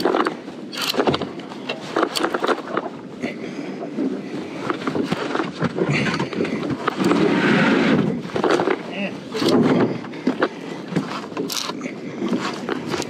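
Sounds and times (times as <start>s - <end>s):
wind on microphone: 3.8s - 13.0s.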